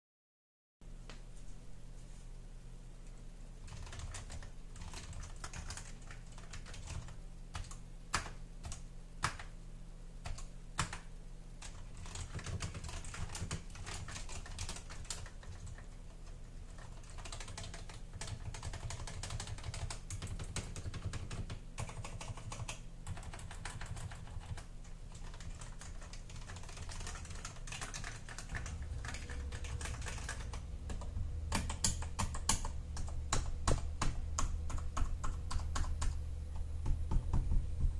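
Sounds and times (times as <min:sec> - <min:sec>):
keyboard keys clacking: 0:16.8 - 0:37.9.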